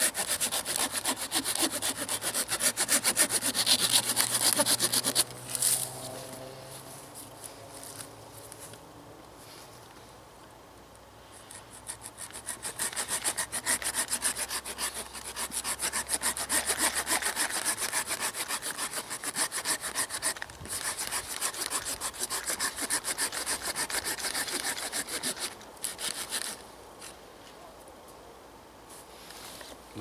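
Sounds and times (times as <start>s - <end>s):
hand saw cutting branch: 0.0s - 6.4s, 11.4s - 26.6s.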